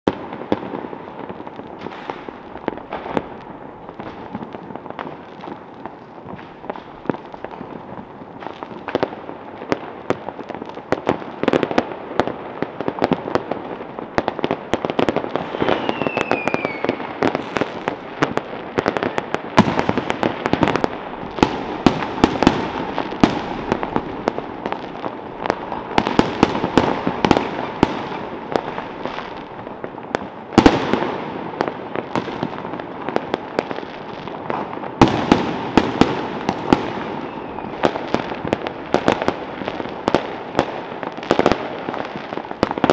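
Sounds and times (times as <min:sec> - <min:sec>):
fireworks bangs and crackles: 0:00.0 - 0:42.9
firework falling whistle: 0:15.3 - 0:18.0, 0:36.7 - 0:38.1.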